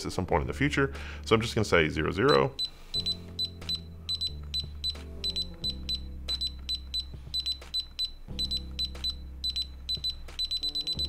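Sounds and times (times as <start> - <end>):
background music with low chords: 0.0 - 11.0
keypad beeping: 2.3 - 11.0.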